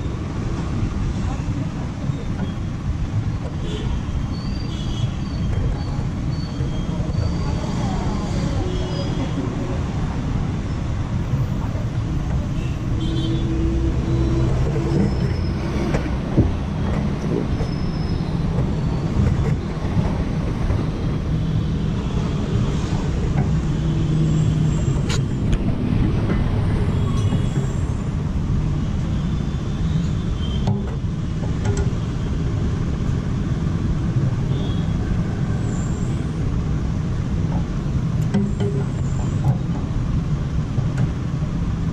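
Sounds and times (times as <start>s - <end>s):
road traffic rumble: 0.0s - 41.9s.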